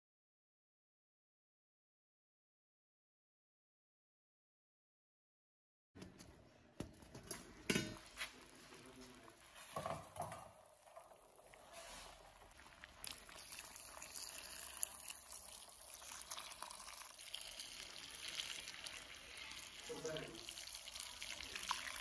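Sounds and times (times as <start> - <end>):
water pouring into pot: 7.4 - 22.0
pot lid knocking and clattering: 9.8 - 10.5.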